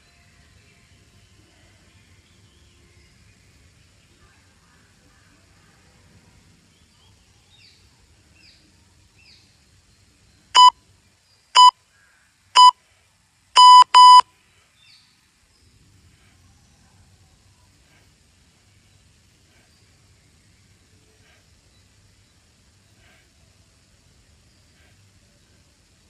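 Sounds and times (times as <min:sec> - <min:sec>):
faint bird chirps: 0:06.7 - 0:13.0, 0:13.6 - 0:25.8
timer beeps: 0:10.6 - 0:10.8, 0:11.6 - 0:11.8, 0:12.6 - 0:12.8, 0:13.6 - 0:14.2
double beep: 0:12.6 - 0:12.8, 0:13.6 - 0:14.2.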